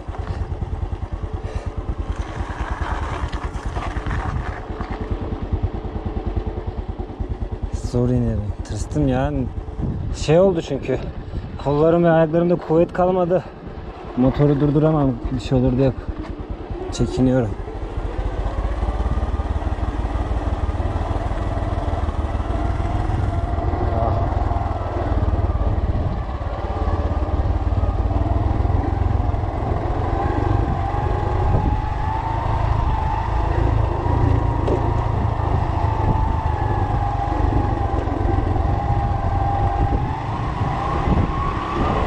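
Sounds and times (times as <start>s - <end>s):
motorcycle engine running: 0.0s - 42.0s
low rumble: 13.4s - 42.0s.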